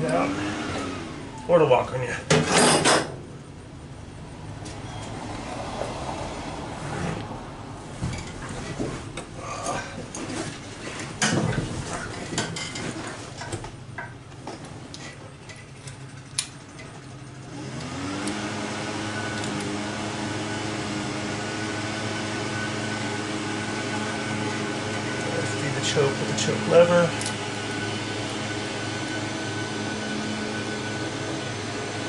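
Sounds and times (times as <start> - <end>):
machine hum: 15.3 - 32.0.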